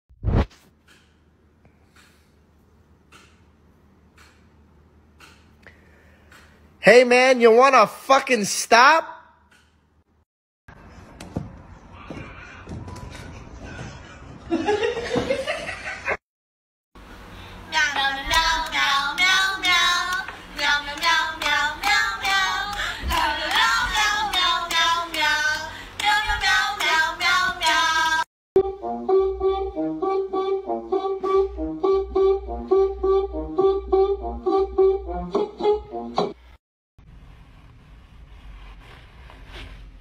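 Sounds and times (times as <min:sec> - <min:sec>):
rhythmic handclaps: 0:18.2 - 0:28.2.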